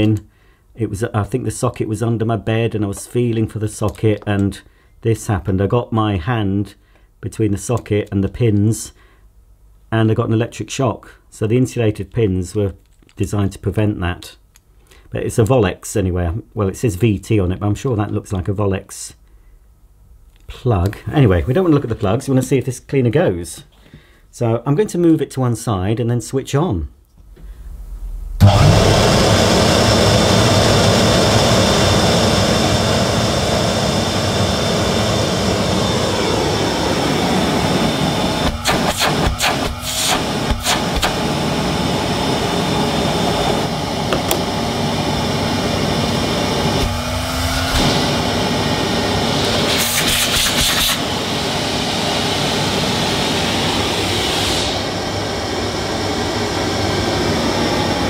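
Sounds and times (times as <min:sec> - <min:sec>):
vacuum cleaner motor running: 0:28.4 - 0:58.0.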